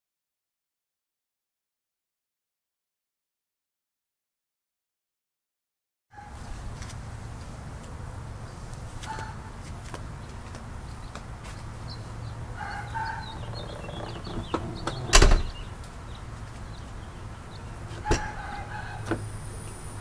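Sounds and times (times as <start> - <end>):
car liftgate slamming shut: 14.4 - 15.6, 18.0 - 18.4.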